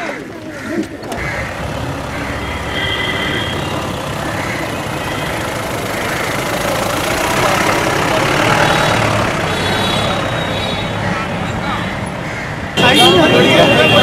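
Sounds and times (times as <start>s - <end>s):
jeep engine driving past: 1.1s - 11.1s.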